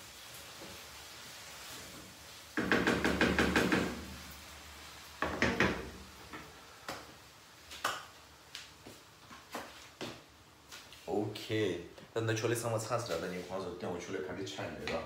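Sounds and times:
wooden spatula knocking frying pan: 0:02.6 - 0:04.2, 0:05.2 - 0:06.4.

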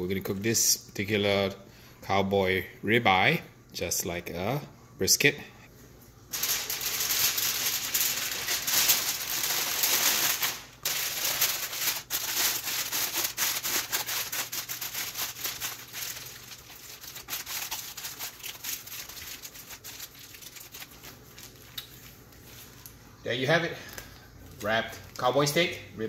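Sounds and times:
aluminium foil crinkling: 0:06.3 - 0:23.0.

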